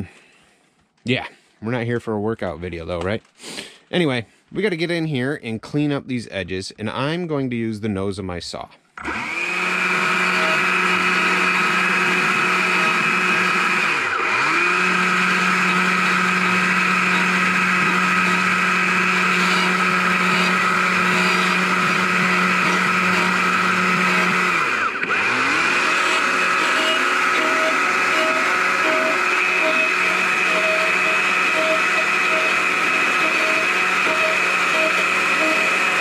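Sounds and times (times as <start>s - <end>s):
chainsaw running at high speed: 9.0s - 36.0s.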